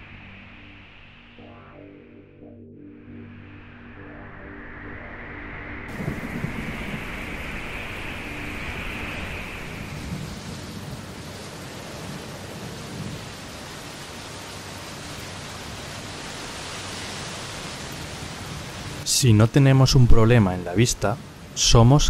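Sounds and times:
low rumbles: 0:00.0 - 0:12.6
steady rushing rain-like noise: 0:05.9 - 0:22.0.

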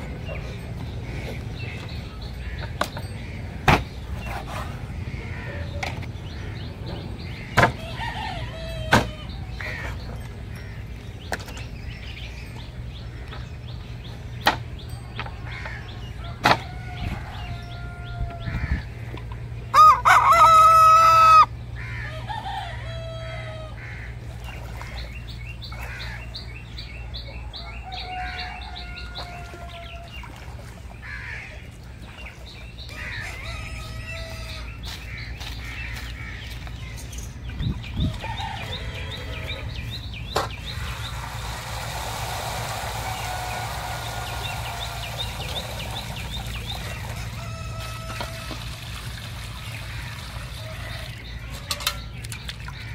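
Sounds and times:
rooster crowing: 0:07.8 - 0:09.4, 0:16.2 - 0:18.6, 0:19.7 - 0:23.8, 0:27.6 - 0:30.1, 0:32.9 - 0:34.8, 0:38.2 - 0:39.7, 0:47.2 - 0:48.8
small birds chirping: 0:31.0 - 0:47.6.

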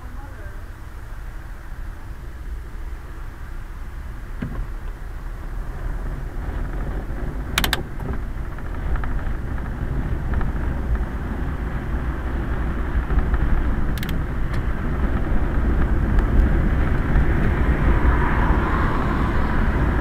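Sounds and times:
rumble of wheels and wind: 0:00.0 - 0:20.0
sharp clicks: 0:07.6 - 0:08.2, 0:13.9 - 0:14.6.

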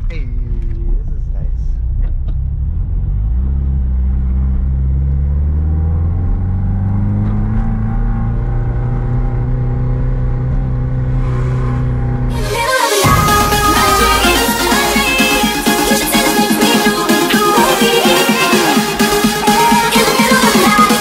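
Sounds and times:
car engine drone from inside: 0:00.0 - 0:15.5.

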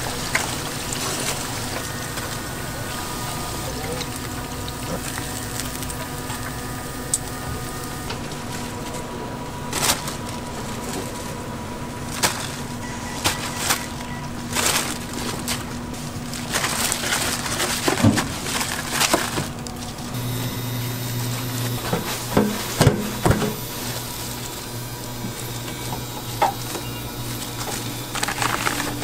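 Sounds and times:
low hum: 0:00.0 - 0:17.7, 0:18.4 - 0:29.0
utensils clattering: 0:12.1 - 0:20.2, 0:21.6 - 0:29.0
frying hiss: 0:20.1 - 0:29.0.

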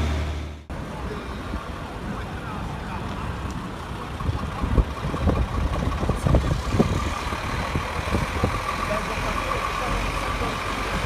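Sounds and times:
diesel truck engine rumbling: 0:00.0 - 0:11.0.

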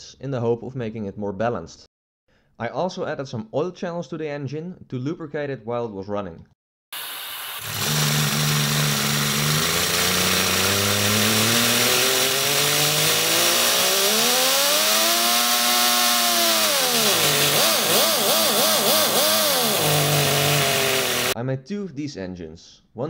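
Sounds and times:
air hissing: 0:07.0 - 0:14.3
compressed-air engine running: 0:07.0 - 0:21.4.

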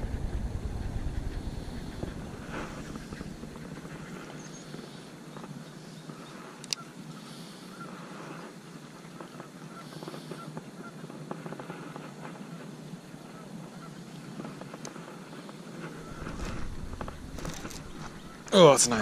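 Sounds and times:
low handling rumble: 0:00.0 - 0:04.7, 0:15.9 - 0:19.0
geese honking: 0:15.9 - 0:19.0.

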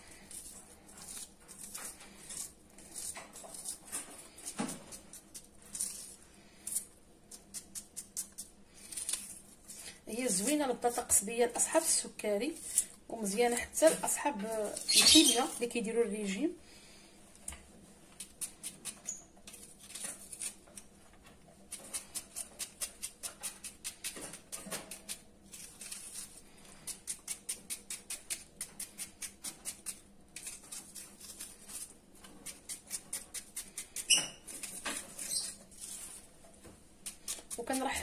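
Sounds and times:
knife slicing onion on board: 0:21.6 - 0:36.3.

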